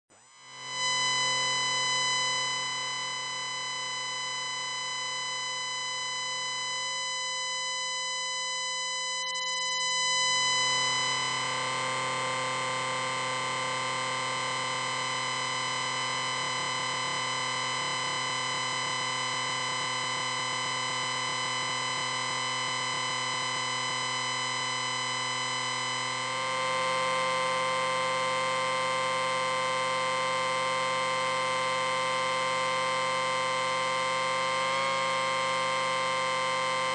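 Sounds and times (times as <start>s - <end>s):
electronic ringing hum: 0.2s - 36.9s.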